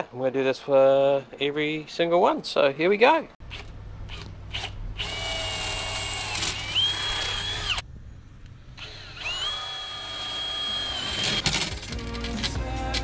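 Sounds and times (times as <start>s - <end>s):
cordless drill whining: 3.5s - 7.8s, 8.8s - 12.3s.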